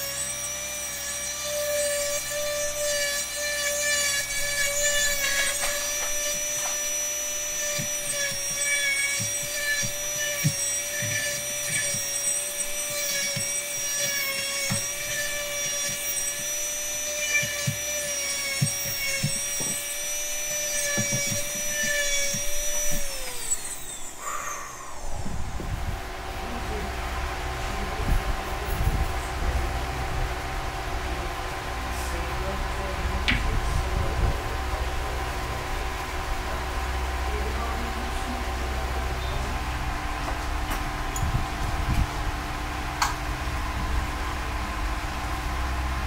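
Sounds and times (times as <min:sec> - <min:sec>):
rotary engraving tool whining: 0:00.0 - 0:30.9.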